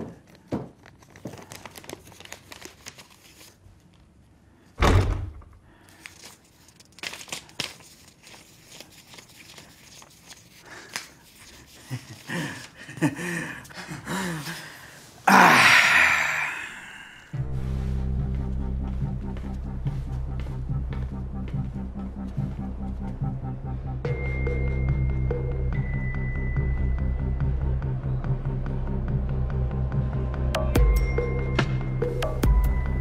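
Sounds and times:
banknotes rustling: 0.1s - 4.2s, 5.7s - 14.0s
door thudding shut: 4.8s - 5.5s.

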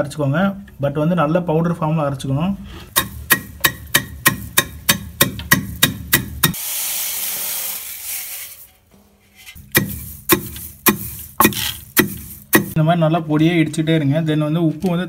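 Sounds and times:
pestle pounding in stone mortar: 2.9s - 6.6s, 9.6s - 12.8s
rushing hiss: 6.6s - 8.7s.

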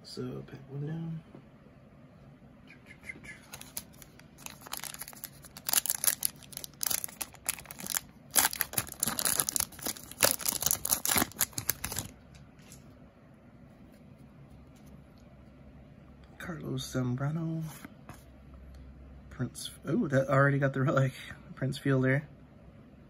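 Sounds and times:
wrapper crinkling and tearing: 3.5s - 12.2s.

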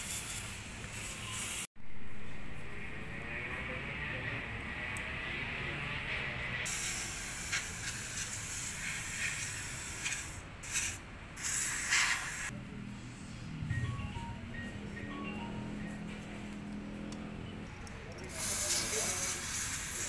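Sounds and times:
aerosol spray hissing: 6.7s - 12.5s, 18.3s - 20.0s.

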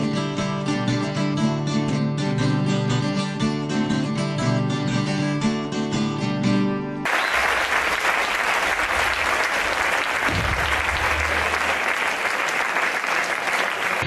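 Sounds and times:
acoustic guitar: 0.0s - 7.1s
audience applauding: 7.0s - 14.0s.

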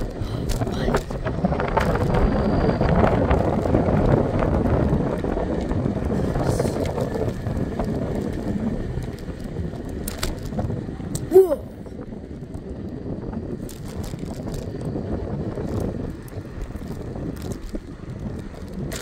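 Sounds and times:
wheels rolling on concrete: 0.0s - 19.0s
wind rushing over microphone: 0.0s - 19.0s
small clicks and rattles: 3.0s - 11.3s, 13.6s - 19.0s.

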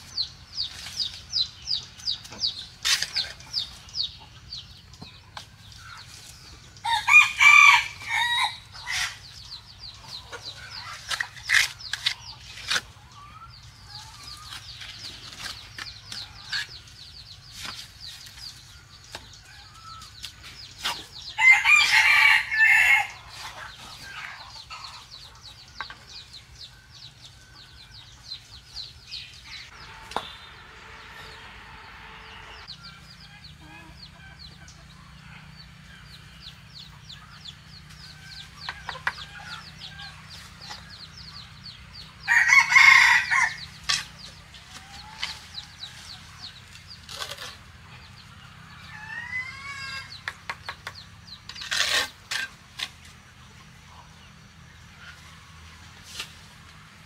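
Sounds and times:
rooster crowing: 6.8s - 8.6s, 21.4s - 23.2s, 42.3s - 43.6s.

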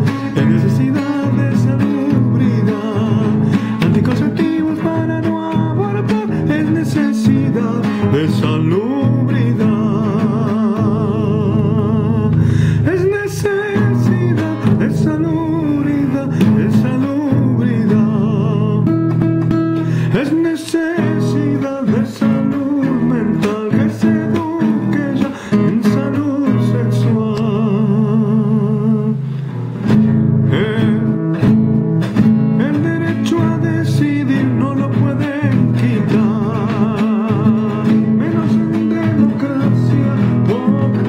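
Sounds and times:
man singing: 0.0s - 29.4s, 30.4s - 41.0s
acoustic guitar strumming: 0.0s - 41.0s.

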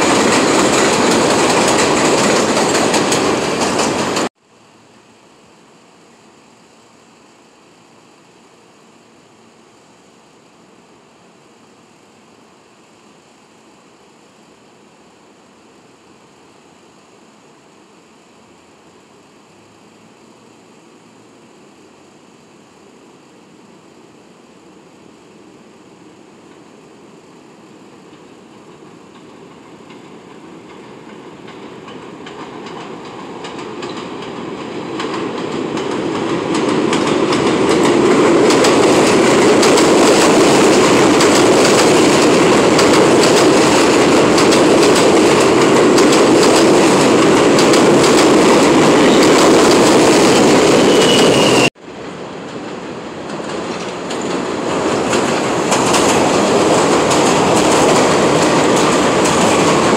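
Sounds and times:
train wheels clattering over rail joints: 0.0s - 4.3s, 28.1s - 51.7s, 52.4s - 59.9s
train rumbling past: 0.0s - 4.4s, 24.5s - 59.9s.

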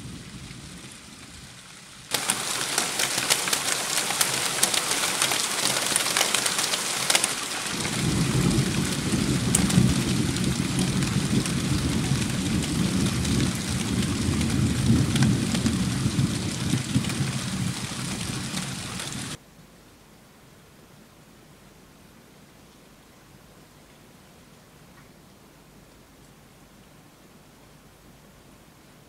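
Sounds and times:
rain hissing: 0.0s - 19.4s
thunder rumbling: 0.0s - 19.4s.

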